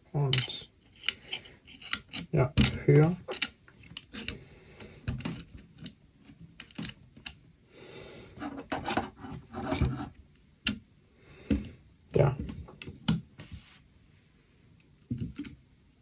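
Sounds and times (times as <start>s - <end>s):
metal clicks and knocks: 0.3s - 4.4s, 5.1s - 7.4s, 14.8s - 15.6s.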